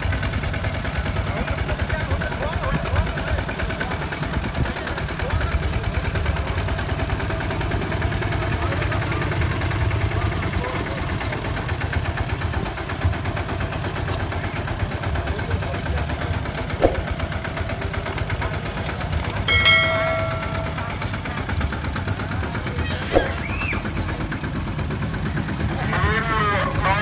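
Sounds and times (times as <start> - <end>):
diesel engine idling: 0.0 - 27.0
short ringing chime: 19.4 - 21.2.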